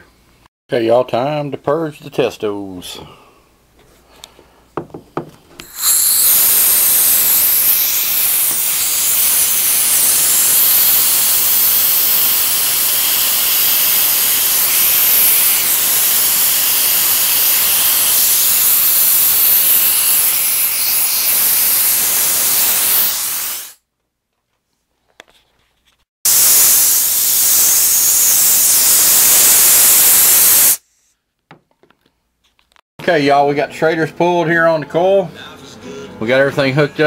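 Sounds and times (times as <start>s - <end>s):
pressurised gas hissing: 5.6s - 23.8s, 26.3s - 31.1s.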